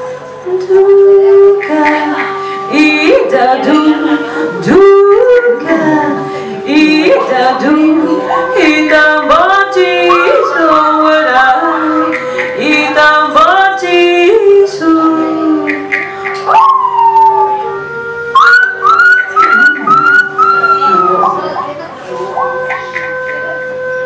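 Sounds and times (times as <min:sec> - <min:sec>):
held steady drone note: 0:00.0 - 0:24.0
woman singing chant-like song: 0:00.5 - 0:16.0.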